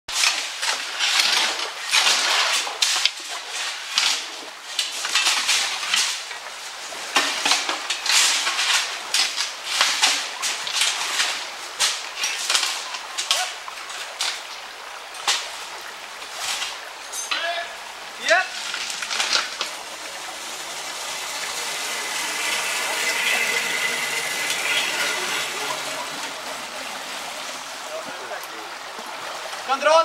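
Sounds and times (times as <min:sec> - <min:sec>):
shovels digging into gravel: 0:18.5 - 0:19.8
stones clattering on metal: 0:18.6 - 0:19.8.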